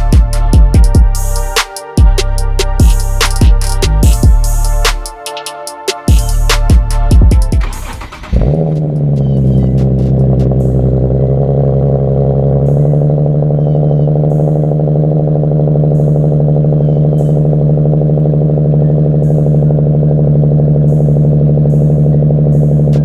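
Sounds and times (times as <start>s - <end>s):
car engine idling: 5.9s - 23.0s.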